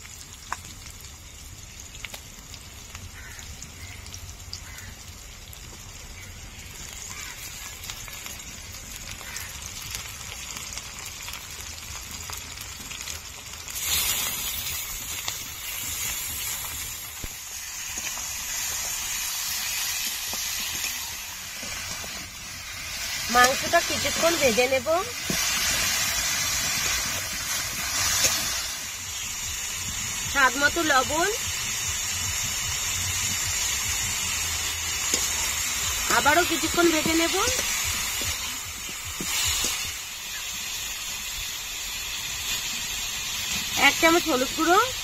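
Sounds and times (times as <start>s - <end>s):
meat sizzling in hot oil: 0.0s - 45.0s.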